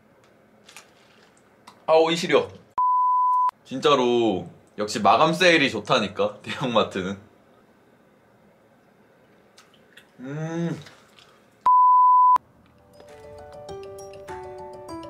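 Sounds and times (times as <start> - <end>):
censor bleep: 2.8 - 3.5, 11.7 - 12.4
light background music: 12.7 - 15.0.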